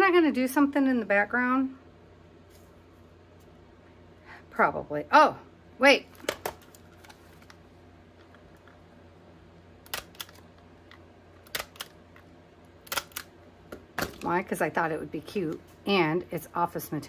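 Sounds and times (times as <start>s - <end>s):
sharp small clicks: 9.9s - 12.0s, 12.8s - 13.3s.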